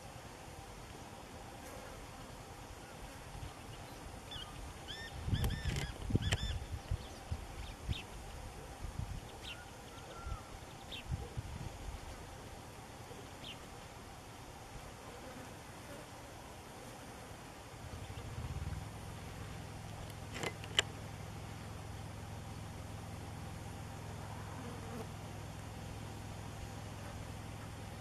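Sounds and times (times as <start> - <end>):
background hiss: 0.0 - 28.0
songbirds chirping: 2.1 - 11.4, 12.0 - 14.3, 17.6 - 22.7.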